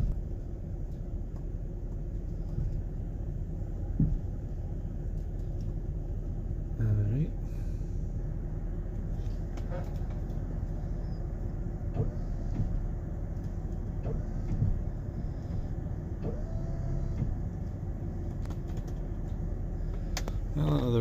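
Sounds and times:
pickup engine rumbling: 0.0s - 21.0s.

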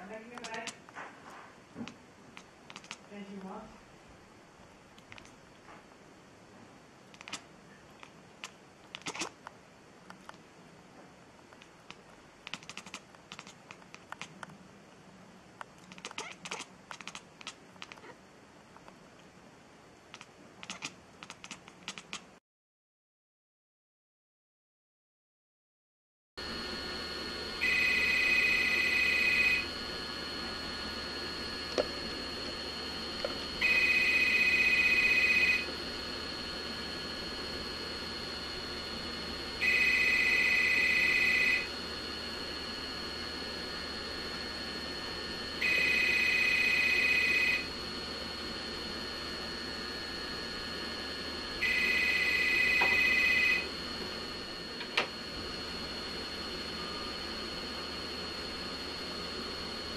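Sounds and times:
telephone ringer trilling: 27.6s - 29.8s, 33.0s - 36.5s, 38.9s - 41.7s, 45.6s - 47.7s, 51.6s - 53.7s.

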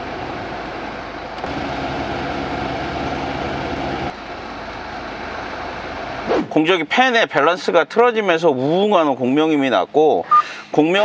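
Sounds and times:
low steady drone: 0.0s - 6.4s
blower fan air rushing: 0.0s - 7.2s.

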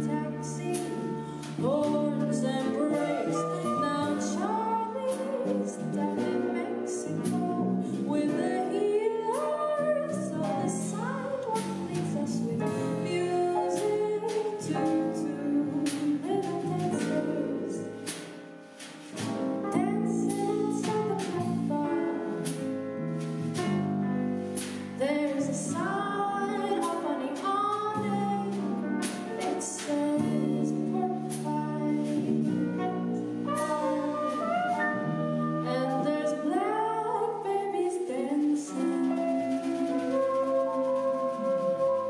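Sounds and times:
woman singing: 0.0s - 18.0s, 19.2s - 22.4s, 25.0s - 35.0s, 35.6s - 42.0s
grand piano: 0.0s - 42.0s
drum kit with cymbals: 10.4s - 26.1s
soprano saxophone: 28.1s - 42.0s.

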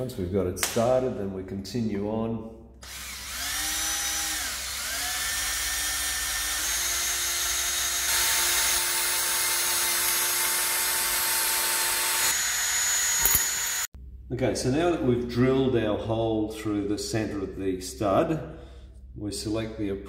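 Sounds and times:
cordless drill motor whine: 2.8s - 13.9s
drill bit cutting hiss: 2.9s - 13.9s.

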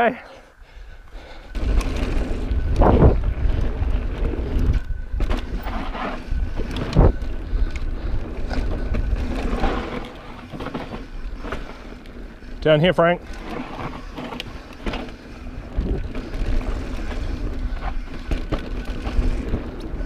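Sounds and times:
mountain bike rattling on trail: 0.6s - 20.0s
wind on microphone: 1.5s - 10.0s, 15.4s - 20.0s.

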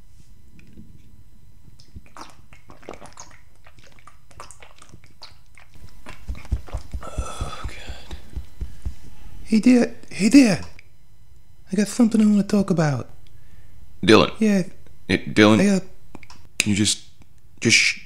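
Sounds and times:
gulping swallows: 1.8s - 8.2s
wet mouth clicks: 1.8s - 8.3s
breathy vocal sound: 6.9s - 8.4s.

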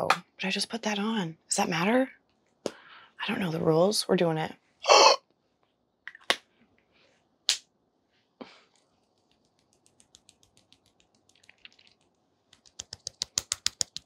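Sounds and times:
fingertips patting cheek: 9.0s - 14.0s.

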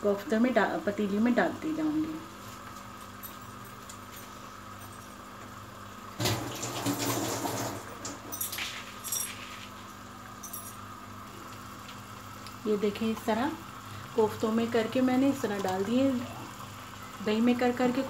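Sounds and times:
steady low hum: 7.8s - 18.0s
food sizzling in pot: 8.8s - 18.0s.

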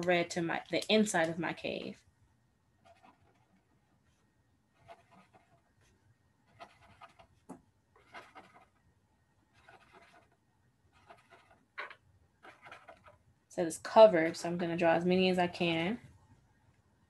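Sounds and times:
marker scratching on paper: 2.8s - 8.8s, 9.5s - 13.2s.

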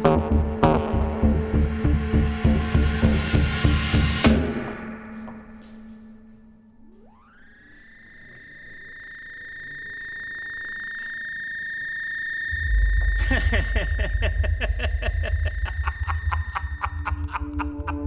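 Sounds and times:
deep low rumble: 0.0s - 4.4s, 12.5s - 18.0s
fast pulsing rhythm: 0.0s - 4.7s, 12.6s - 18.0s
steady high tone: 0.0s - 18.0s
suspense film score: 0.0s - 18.0s.

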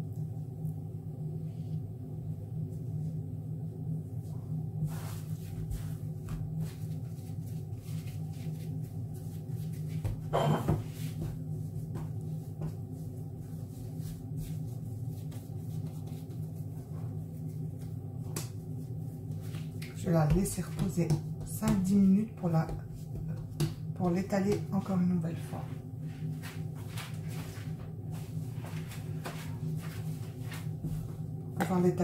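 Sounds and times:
steady low hum: 0.0s - 32.0s
hands tapping dough on countertop: 9.9s - 12.9s, 20.2s - 24.9s.

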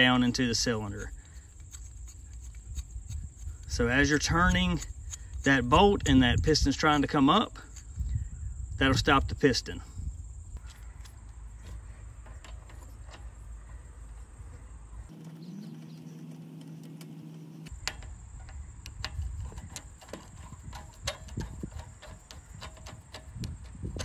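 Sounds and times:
small metallic clicks and taps: 17.7s - 24.0s.

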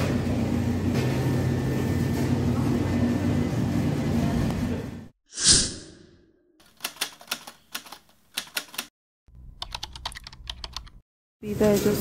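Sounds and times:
typewriter key clicks: 6.7s - 8.9s.

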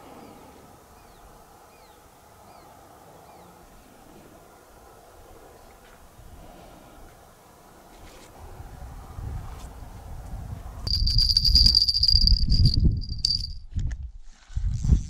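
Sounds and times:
insect chirring: 10.9s - 13.6s.

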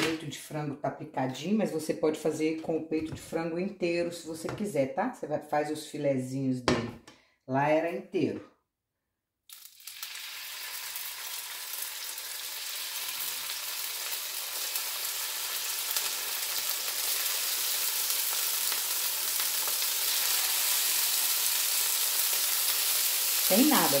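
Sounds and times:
chicken sizzling in a frying pan: 9.5s - 24.0s.

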